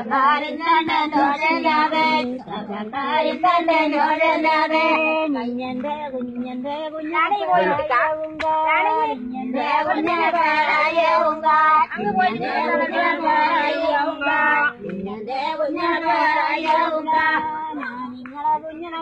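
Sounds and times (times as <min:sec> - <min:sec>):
person singing folk song: 0:00.0 - 0:19.0.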